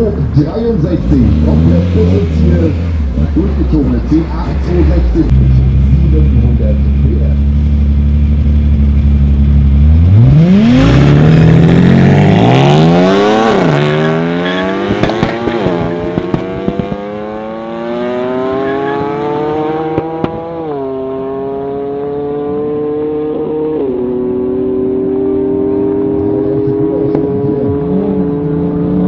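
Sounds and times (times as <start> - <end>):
car engine revving through gears: 0.9 - 6.2, 8.3 - 29.0
sharp bangs: 11.7 - 17.8.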